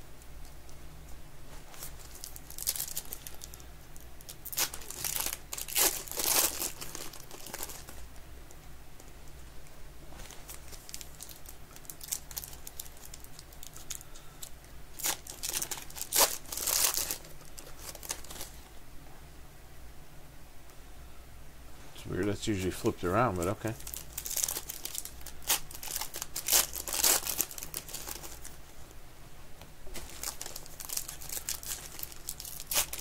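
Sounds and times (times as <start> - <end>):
foil wrapper tearing and crinkling: 1.8 - 3.6, 4.2 - 8.0, 10.4 - 18.5, 23.7 - 28.6, 30.0 - 33.0.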